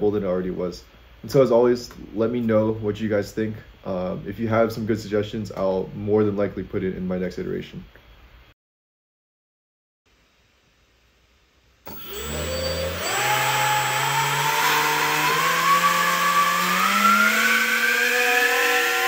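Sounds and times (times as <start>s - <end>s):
electric ducted fan whine: 10.1s - 19.0s.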